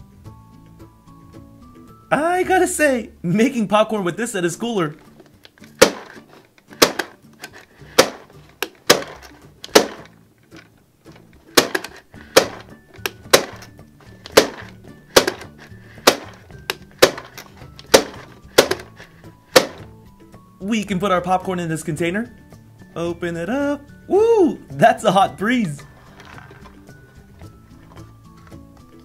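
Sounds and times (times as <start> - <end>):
faint background music: 0.0 - 29.0
toy popcorn maker clacking: 5.5 - 10.7, 11.5 - 19.8.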